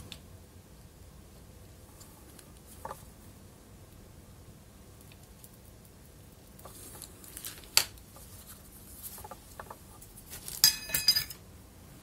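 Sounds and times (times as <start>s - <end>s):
metallic clicks and clinks: 10.6s - 11.4s.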